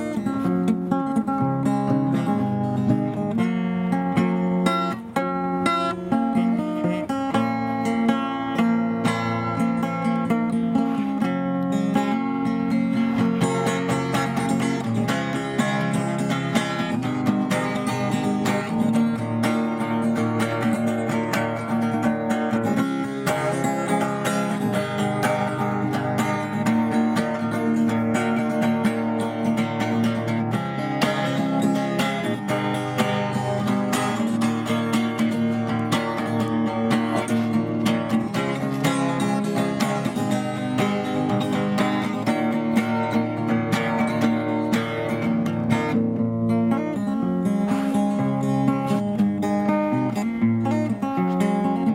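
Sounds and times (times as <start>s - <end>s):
acoustic guitar strumming: 0.0s - 51.9s.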